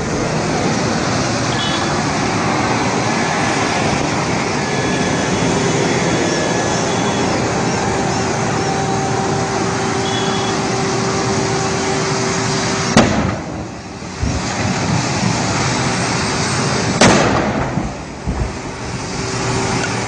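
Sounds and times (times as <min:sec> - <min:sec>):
steady background noise: 0:00.0 - 0:20.0
vehicle explosion bangs: 0:12.9 - 0:15.6, 0:16.8 - 0:18.8.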